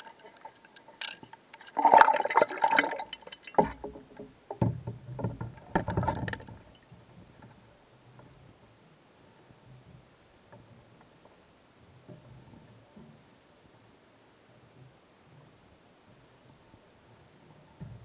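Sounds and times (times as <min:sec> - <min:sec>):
water splashing and sloshing: 0:00.0 - 0:08.6
muffled underwater knocks: 0:03.6 - 0:07.6, 0:17.8 - 0:18.0.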